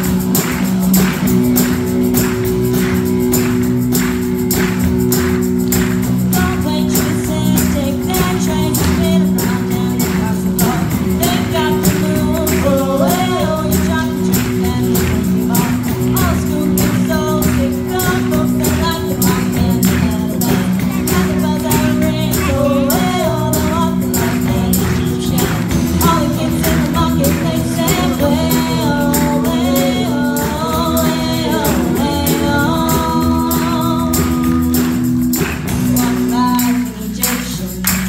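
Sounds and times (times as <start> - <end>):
live rock band playing: 0.0 - 38.0
girls singing lead vocal: 6.3 - 35.0.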